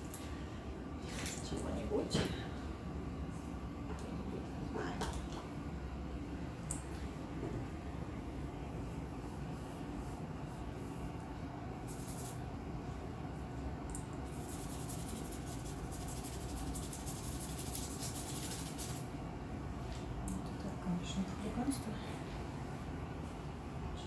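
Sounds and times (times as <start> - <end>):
low room hum: 0.0 - 24.0
paintbrush scrubbing on paper: 8.9 - 11.1, 11.8 - 12.4, 14.3 - 19.1.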